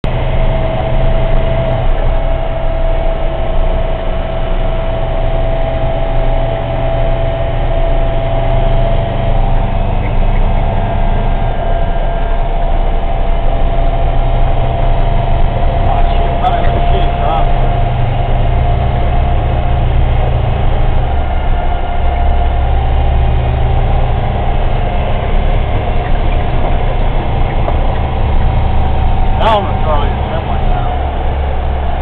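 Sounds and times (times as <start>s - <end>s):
constant high whine: 0.0s - 32.0s
truck engine low rumble: 0.0s - 32.0s.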